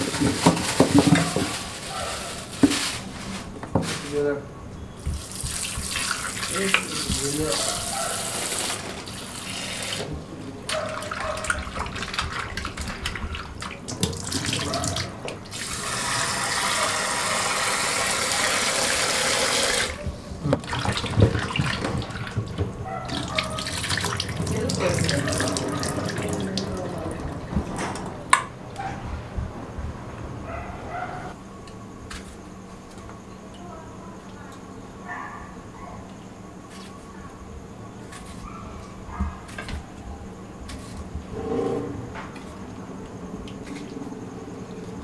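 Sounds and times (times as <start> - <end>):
tap water running into a bowl: 5.0 - 7.6, 11.0 - 20.0, 20.6 - 27.4
water splashing: 23.1 - 27.5.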